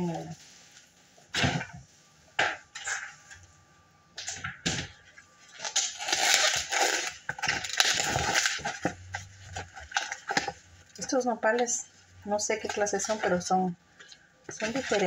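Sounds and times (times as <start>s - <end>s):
dense rustling and crackling: 14.5s - 15.0s.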